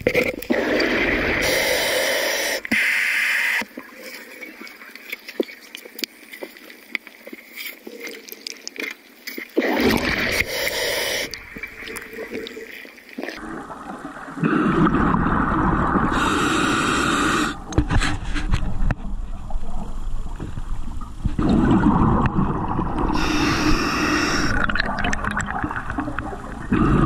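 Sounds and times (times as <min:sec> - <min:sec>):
underwater clicks and crackles: 0:00.0 - 0:01.6, 0:02.6 - 0:16.0, 0:17.6 - 0:26.9
gurgling exhaled bubbles: 0:09.6 - 0:16.4, 0:21.4 - 0:27.0.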